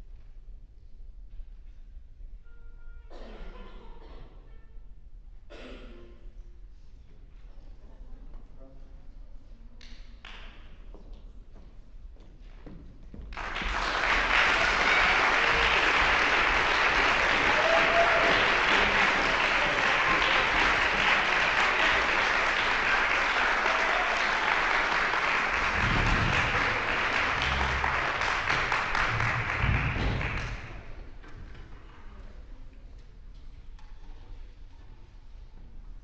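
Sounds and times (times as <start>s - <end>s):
audience applause: 13.4s - 31.1s
low thumps: 25.6s - 30.8s.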